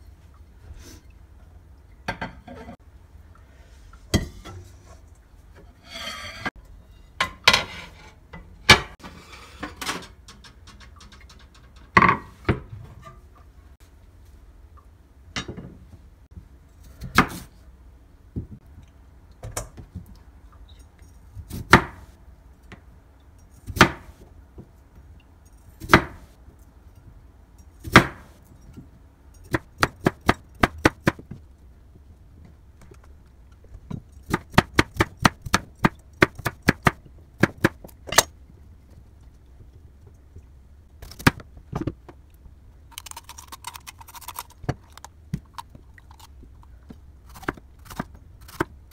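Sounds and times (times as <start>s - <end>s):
knife chopping on wooden board: 34.3s - 37.8s.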